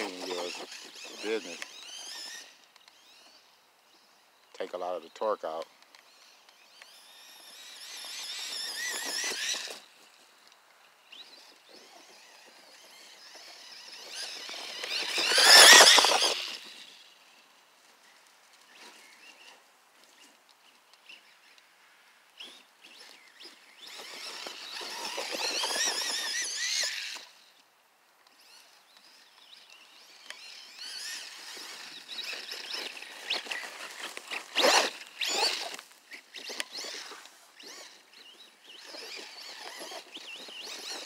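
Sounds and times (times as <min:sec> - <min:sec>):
electric motor high whine: 0:06.5 - 0:10.0, 0:11.1 - 0:17.1, 0:28.6 - 0:41.0.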